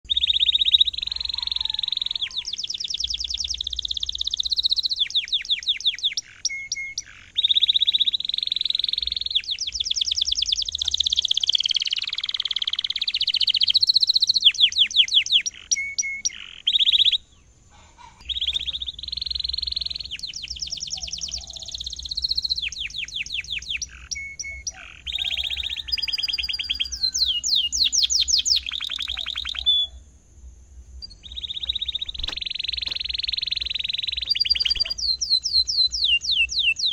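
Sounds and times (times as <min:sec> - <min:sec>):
canary singing trills: 0:00.0 - 0:30.2, 0:30.9 - 0:36.9.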